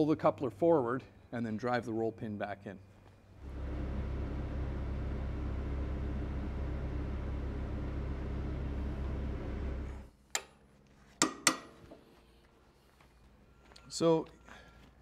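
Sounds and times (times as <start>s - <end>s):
excavator diesel engine running: 3.4s - 10.1s.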